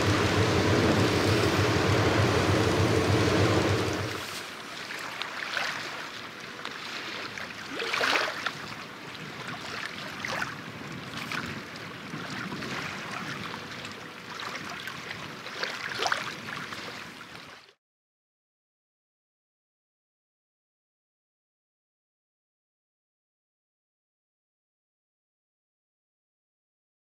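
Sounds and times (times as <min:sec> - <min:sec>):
small waves slapping: 0:00.0 - 0:17.7
water lapping and splashing: 0:00.0 - 0:17.8.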